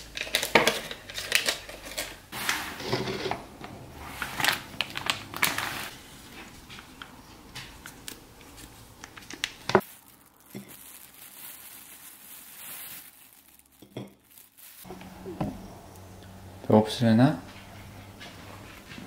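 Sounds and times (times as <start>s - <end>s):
foil sachet crinkling: 4.2s - 6.0s, 7.8s - 14.9s.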